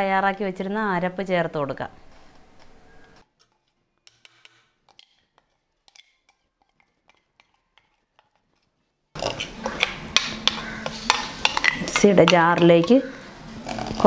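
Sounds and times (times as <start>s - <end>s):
spoon scraping metal jar: 2.3s - 14.0s.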